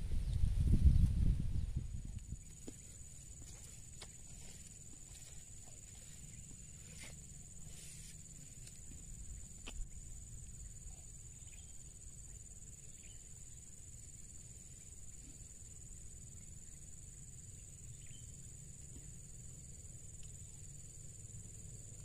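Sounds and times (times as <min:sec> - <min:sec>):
wind on microphone: 0:00.0 - 0:02.5
high insect drone: 0:00.0 - 0:22.0.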